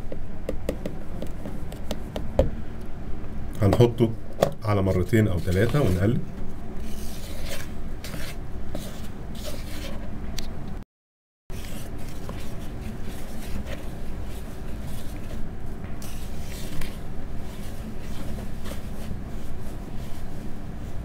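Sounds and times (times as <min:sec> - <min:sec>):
wooden spoon scraping bowl: 0:05.2 - 0:06.1, 0:06.8 - 0:10.0.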